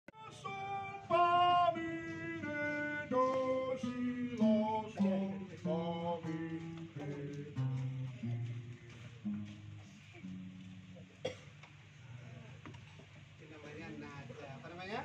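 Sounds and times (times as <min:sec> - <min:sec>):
acoustic guitar descending run: 0:00.2 - 0:11.2.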